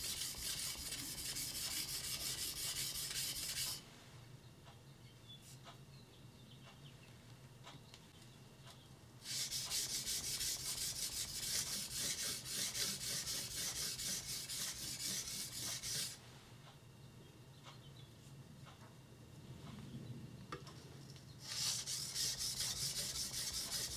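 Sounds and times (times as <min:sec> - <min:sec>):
blade rubbed on whetstone: 0:00.0 - 0:03.8, 0:09.2 - 0:16.2, 0:21.4 - 0:23.9.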